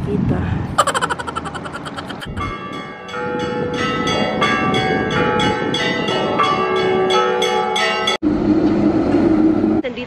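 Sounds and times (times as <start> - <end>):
church bells ringing: 2.3 - 8.2.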